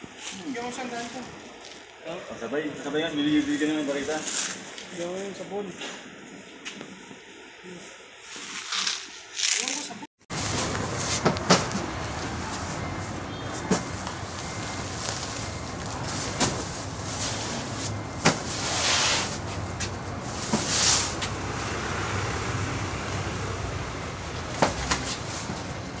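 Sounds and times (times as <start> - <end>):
sacks rustling and scraping: 8.2 - 21.7, 24.4 - 26.0.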